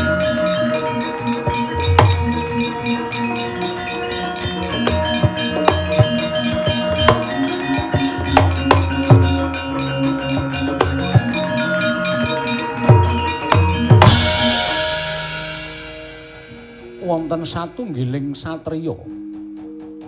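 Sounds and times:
deep drum beats: 0.0s - 20.0s
gamelan ringing metal tones: 0.0s - 20.0s.

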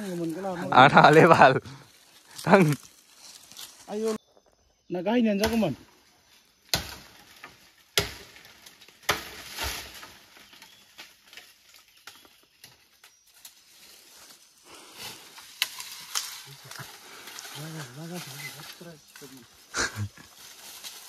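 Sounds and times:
faint rustling and crackling: 7.2s - 21.0s.

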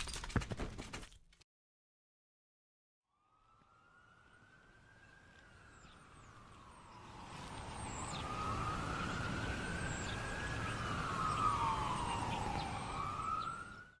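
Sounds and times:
ambulance siren wailing: 3.1s - 14.0s.

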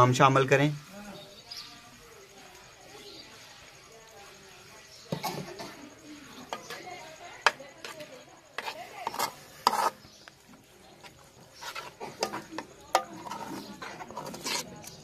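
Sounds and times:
spoon scraping metal pot: 5.1s - 10.3s, 11.0s - 15.0s.

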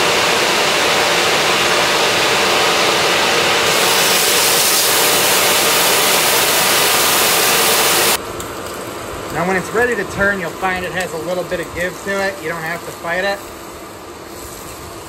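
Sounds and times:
range hood fan rushing air: 0.0s - 15.0s
steak sizzling in oil: 3.7s - 8.2s.

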